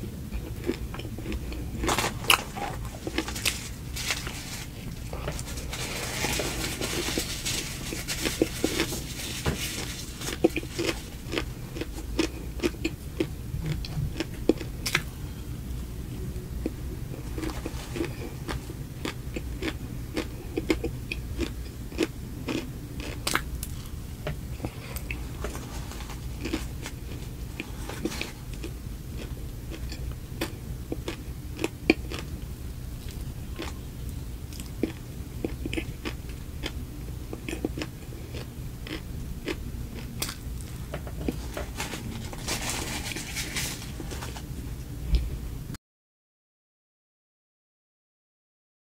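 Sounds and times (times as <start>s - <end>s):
low steady hum: 0.0s - 45.8s
close chewing with mouth clicks: 0.3s - 3.6s, 9.8s - 15.1s, 16.6s - 32.4s, 33.0s - 42.9s.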